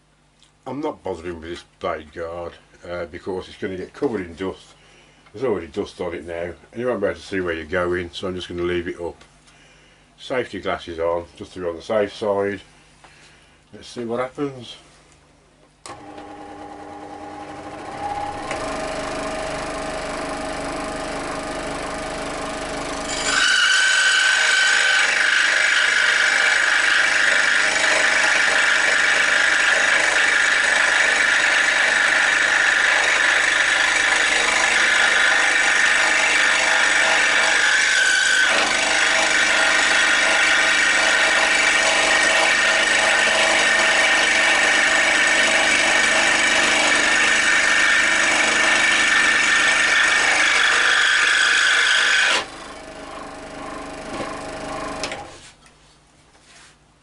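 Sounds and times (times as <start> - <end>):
scroll saw running: 15.9 - 55.5
saw blade cutting wood: 23.0 - 52.6.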